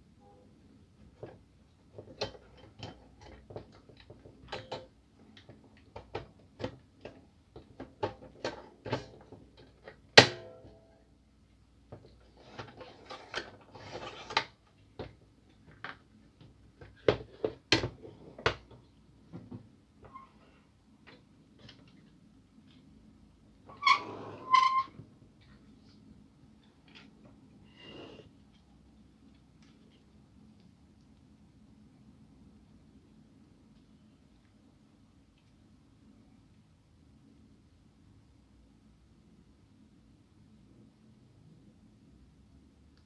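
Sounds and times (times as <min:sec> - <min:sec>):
plastic parts clicking and knocking: 0:01.1 - 0:10.4
scraping and rustling: 0:12.1 - 0:14.6.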